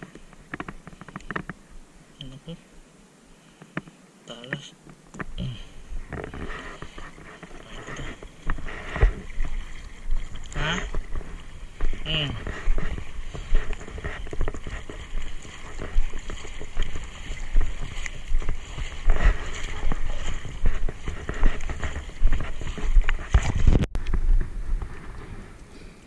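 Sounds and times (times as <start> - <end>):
water splashing around legs: 5.1 - 23.9
wind buffeting microphone: 8.3 - 26.0.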